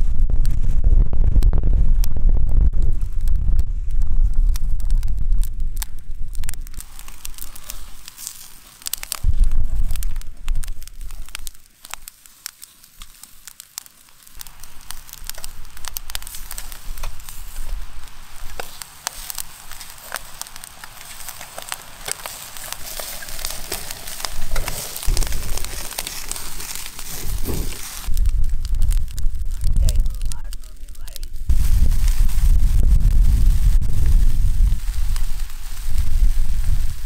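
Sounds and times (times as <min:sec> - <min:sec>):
low rumble: 0:00.0 - 0:07.6, 0:09.2 - 0:11.5, 0:23.4 - 0:37.0
charcoal fire crackling: 0:00.0 - 0:37.0
fire hissing: 0:02.8 - 0:37.0.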